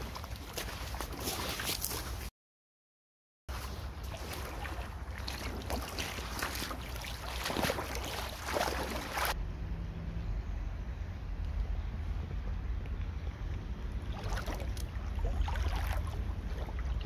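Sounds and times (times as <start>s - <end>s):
boots splashing in water: 0.0s - 2.3s, 3.5s - 9.4s, 14.1s - 17.0s
flowing stream rushing: 4.0s - 9.4s.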